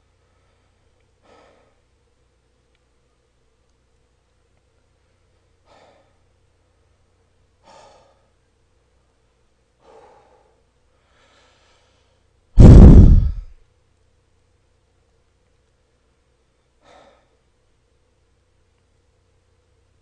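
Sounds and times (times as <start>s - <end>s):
faint breaths: 0.0s - 2.1s, 4.9s - 13.5s, 16.6s - 17.5s.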